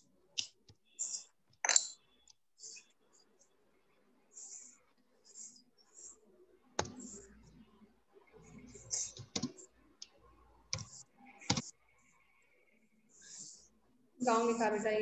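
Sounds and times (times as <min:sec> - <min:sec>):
computer keys clicking: 0:09.1 - 0:10.1, 0:10.7 - 0:11.7.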